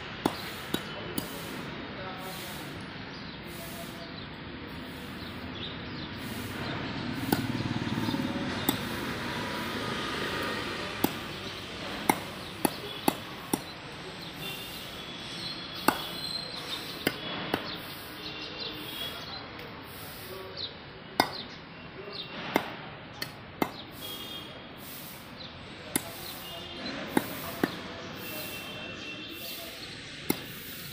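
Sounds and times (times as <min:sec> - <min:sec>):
blade chopping on wooden block: 0:00.2 - 0:01.4, 0:06.6 - 0:13.8, 0:15.4 - 0:17.8, 0:21.2 - 0:21.6, 0:22.5 - 0:23.9, 0:25.9 - 0:26.3, 0:27.1 - 0:27.8, 0:30.3 - 0:30.7
birds chirping faintly: 0:00.2 - 0:30.9.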